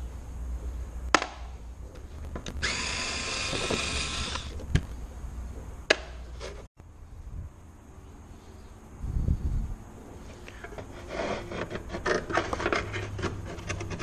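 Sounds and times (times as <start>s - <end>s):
cordless drill whirring: 2.6s - 4.5s.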